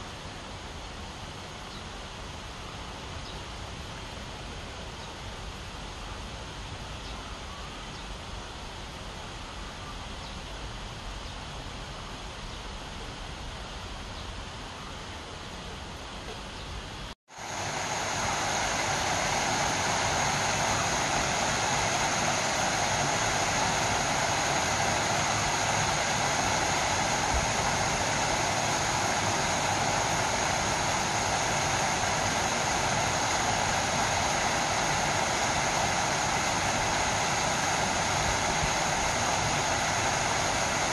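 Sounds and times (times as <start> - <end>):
outdoor background: 0.0 - 40.9
waterfall rushing: 17.3 - 40.9.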